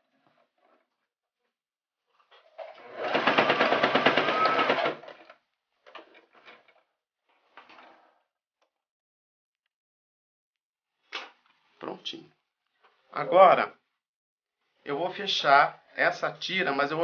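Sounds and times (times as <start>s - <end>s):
sewing machine stitching: 2.4s - 6.8s.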